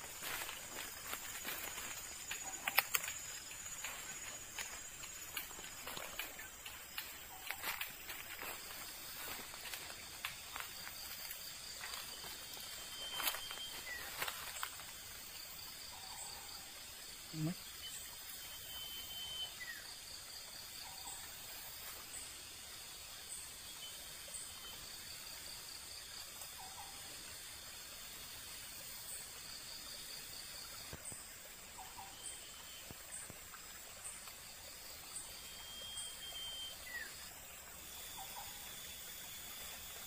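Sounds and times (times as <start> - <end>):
brief lower insect calls: 0.0 - 15.0
insect short high chirp: 0.0 - 28.2, 29.0 - 40.0.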